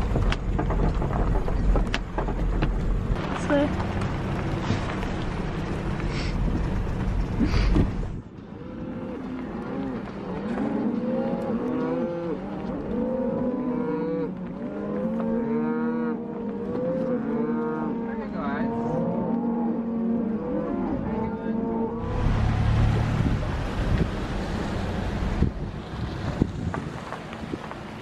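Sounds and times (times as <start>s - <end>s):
vehicle rumbling on gravel: 0.0s - 28.0s
cattle mooing: 8.5s - 22.2s.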